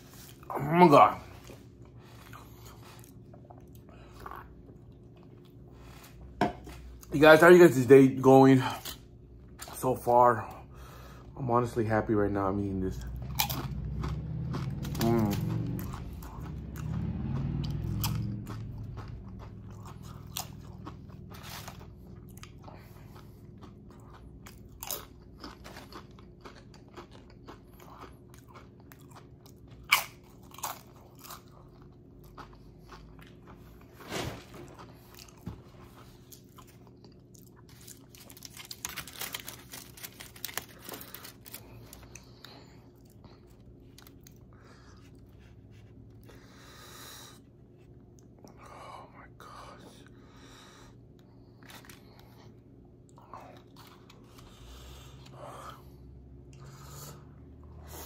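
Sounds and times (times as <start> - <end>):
faint low hum: 0.0 - 58.0
tortilla chips crunching: 12.6 - 45.8
wet chewing: 13.0 - 34.0.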